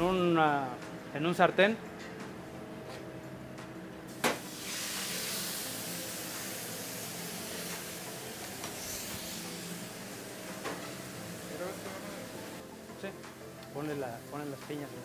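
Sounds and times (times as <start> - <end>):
meat sizzling on griddle: 4.2 - 12.6.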